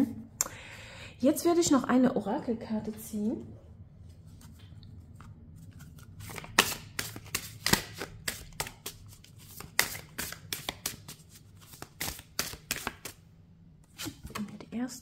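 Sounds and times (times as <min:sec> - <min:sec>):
cards being shuffled: 0:04.3 - 0:13.2, 0:13.9 - 0:14.6.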